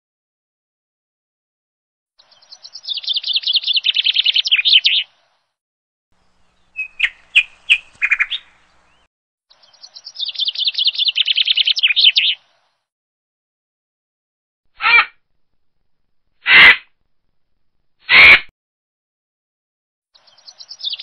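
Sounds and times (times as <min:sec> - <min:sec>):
bird chattering call: 0:06.5 - 0:09.0.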